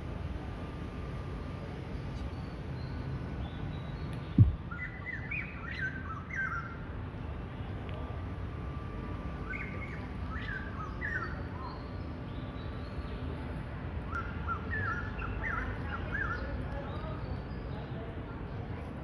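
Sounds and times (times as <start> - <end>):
low background rumble: 0.0 - 5.2.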